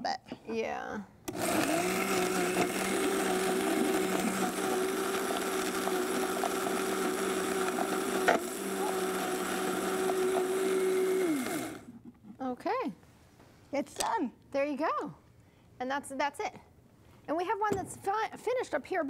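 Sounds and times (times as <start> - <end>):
blender grinding spices: 1.3 - 11.9.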